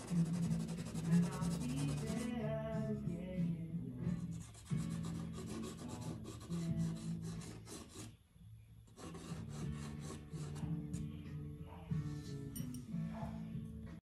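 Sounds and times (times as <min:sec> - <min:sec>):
pencil scratching on paper: 0:00.0 - 0:02.3, 0:04.2 - 0:08.2, 0:08.9 - 0:11.0
background music with low notes: 0:00.0 - 0:14.0.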